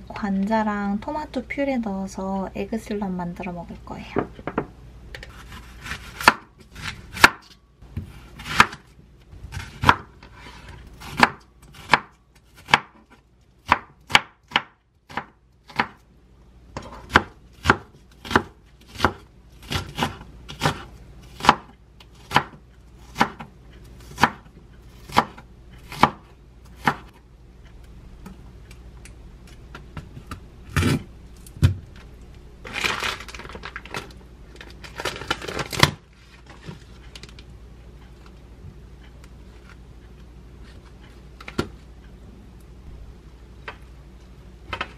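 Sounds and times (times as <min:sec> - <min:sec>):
knife chopping on wooden board: 0:05.3 - 0:08.8, 0:09.5 - 0:10.1, 0:11.0 - 0:16.0, 0:16.8 - 0:27.1
plastic film crinkling: 0:32.6 - 0:37.5.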